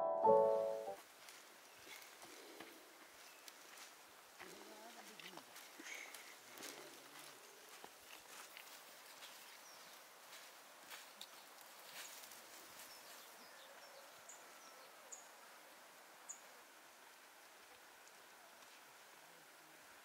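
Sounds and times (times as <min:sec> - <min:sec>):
faint jungle ambience: 0:00.0 - 0:20.0.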